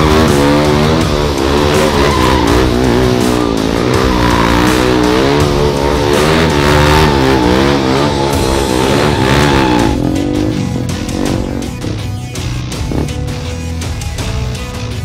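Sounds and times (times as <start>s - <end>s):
tyre squealing on asphalt: 0.0s - 11.4s
motorcycle engine revving hard: 0.0s - 13.6s.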